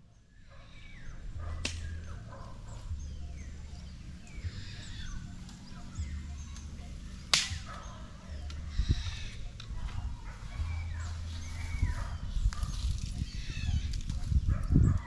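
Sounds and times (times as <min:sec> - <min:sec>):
sharp crack: 0:01.6 - 0:01.9, 0:07.3 - 0:07.7.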